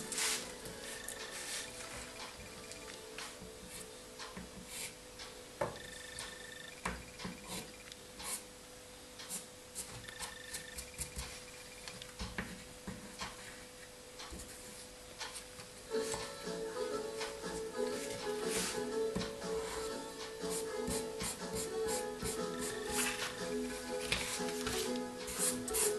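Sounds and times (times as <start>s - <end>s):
faint steady hum: 0.0s - 25.9s
pastel rubbing on paper: 24.2s - 25.9s.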